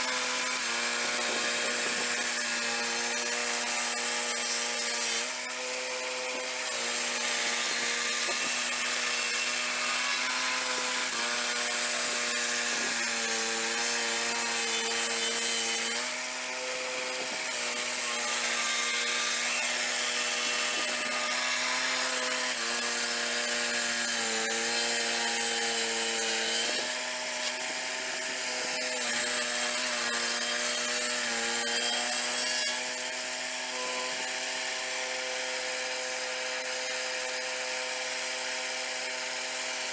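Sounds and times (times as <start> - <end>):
circular saw blade cutting wood: 0.0 - 39.9
sawmill engine running at high revs: 0.0 - 39.9.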